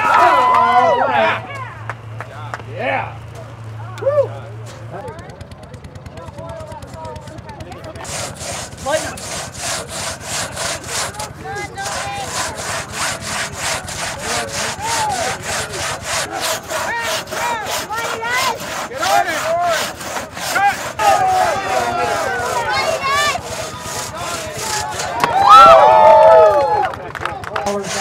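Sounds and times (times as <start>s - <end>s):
crosscut saw cutting log: 4.6s - 25.6s, 27.4s - 28.0s.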